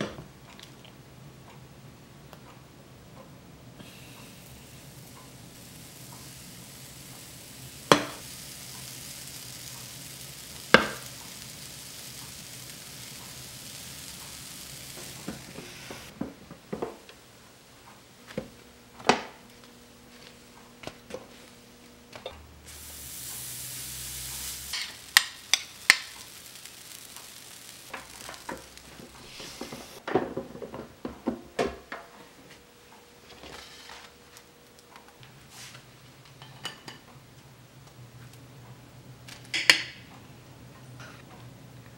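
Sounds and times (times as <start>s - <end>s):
batter hissing in waffle iron: 3.8s - 16.2s, 22.6s - 30.0s
utensils clicking and clinking: 24.7s - 30.0s.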